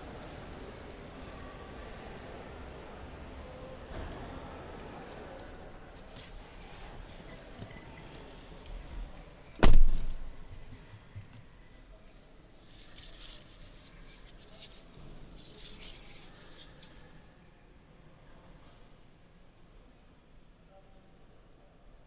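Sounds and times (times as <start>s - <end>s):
heavy thud: 9.6s - 10.4s.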